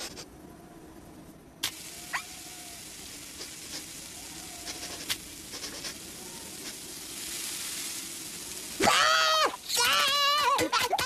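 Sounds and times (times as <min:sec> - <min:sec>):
cartoon sizzle hiss: 0:01.6 - 0:11.0.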